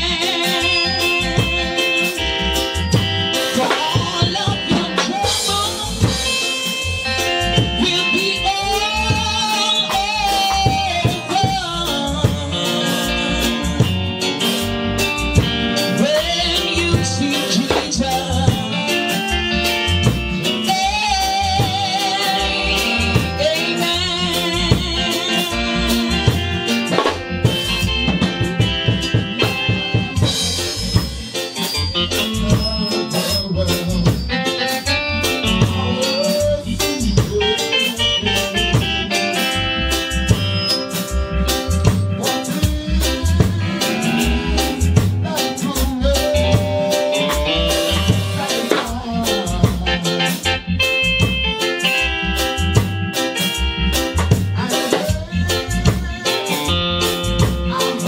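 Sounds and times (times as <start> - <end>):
woman singing gospel: 0.0 - 1.0, 3.6 - 6.2, 7.8 - 14.0, 16.0 - 18.9, 20.6 - 26.6
drum kit beating: 0.0 - 58.0
keyboard and band accompaniment: 0.0 - 58.0.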